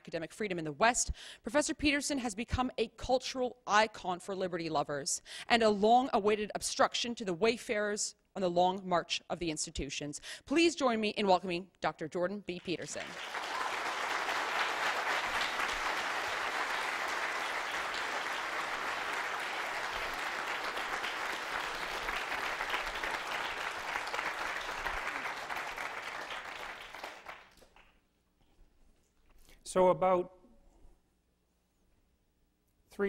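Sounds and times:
audience applauding: 12.9s - 27.9s.

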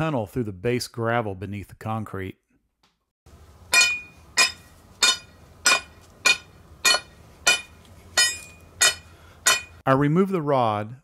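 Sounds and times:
mallet striking metal rod: 3.7s - 9.8s.

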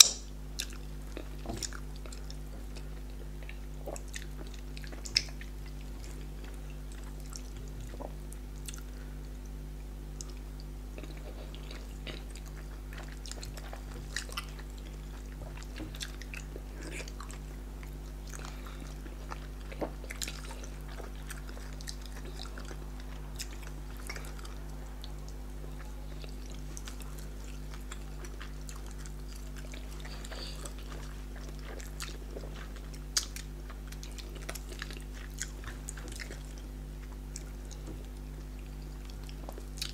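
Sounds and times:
steady low hum: 0.0s - 39.9s
wet chewing: 10.2s - 39.9s.

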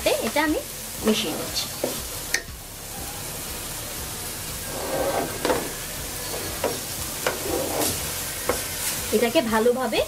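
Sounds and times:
frying sizzle: 0.0s - 10.0s
spatula stirring food in pot: 4.6s - 9.1s.

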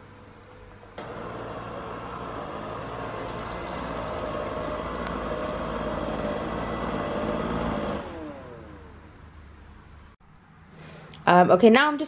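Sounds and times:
robot vacuum whirring: 1.0s - 9.0s.

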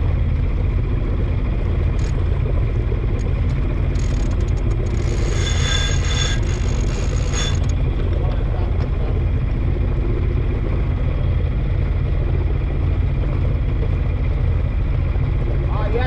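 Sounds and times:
boat engine rumbling: 0.0s - 16.0s
deck gear clicks: 1.9s - 2.2s, 3.2s - 5.4s
high squeal from deck gear: 4.9s - 7.7s.

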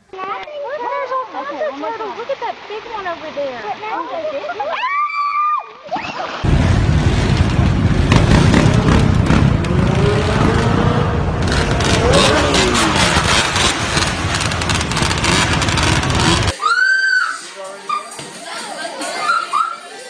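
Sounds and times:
quad bike engines revving: 7.9s - 16.6s.

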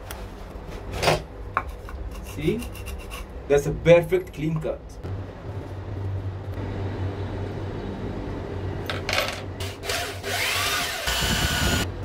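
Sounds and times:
power drill driving screws: 9.6s - 11.8s.

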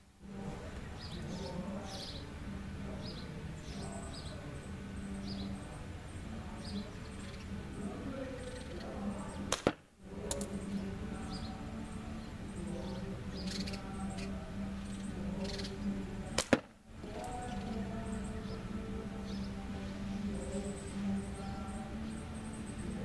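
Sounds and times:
birds chirping: 0.0s - 23.0s
steady low hum: 0.0s - 23.0s
sharp cracks of target hits: 9.5s - 9.9s, 16.4s - 16.8s.

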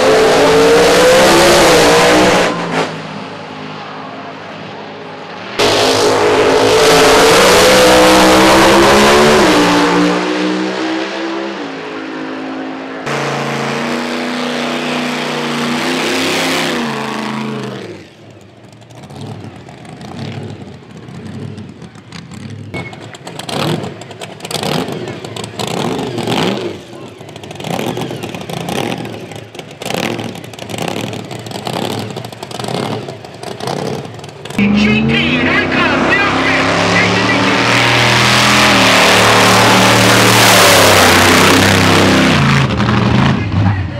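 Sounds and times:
dragster engine running hard: 17.7s - 43.9s.

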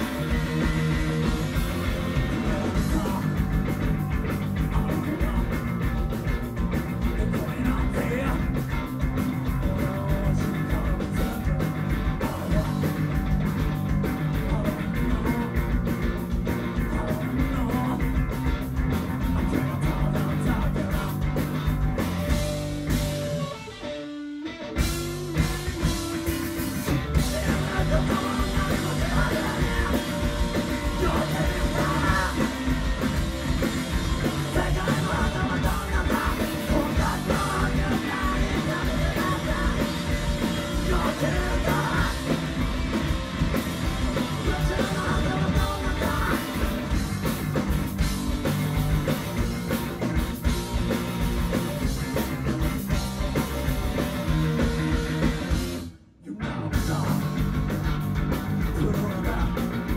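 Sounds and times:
rock band playing live: 0.0s - 59.9s
person singing: 2.2s - 3.5s, 27.2s - 32.9s, 34.4s - 42.4s, 44.3s - 47.0s.

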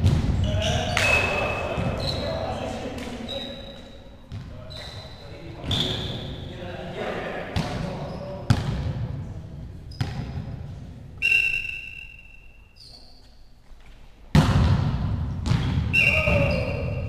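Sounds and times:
volleyball thuds: 0.0s - 2.1s, 14.3s - 16.5s
sports hall noise: 0.0s - 17.0s
referee's whistle: 0.4s - 2.4s, 4.7s - 6.4s, 11.2s - 13.2s, 15.9s - 17.0s.

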